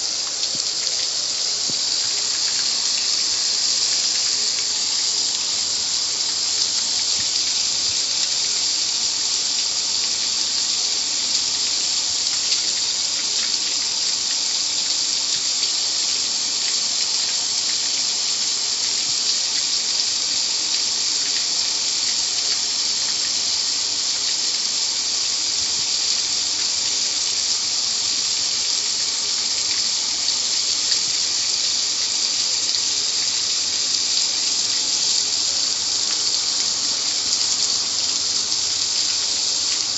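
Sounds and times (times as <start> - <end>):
car wash water spray: 0.0 - 15.4.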